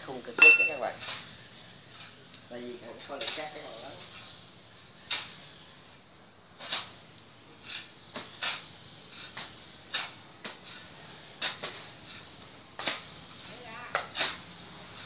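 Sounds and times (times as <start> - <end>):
shovel scraping sand: 5.0 - 5.6, 6.6 - 7.0, 7.6 - 15.0.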